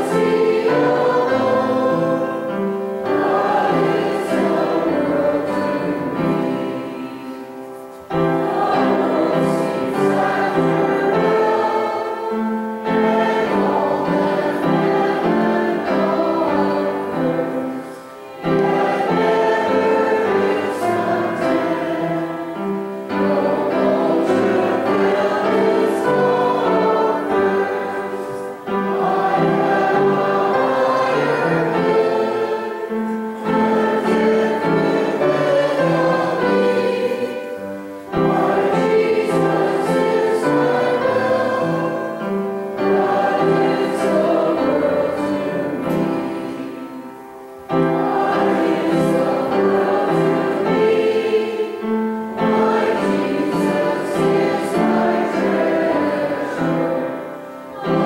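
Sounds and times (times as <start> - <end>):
congregation singing a hymn: 0.0 - 58.0
organ accompaniment: 0.0 - 58.0.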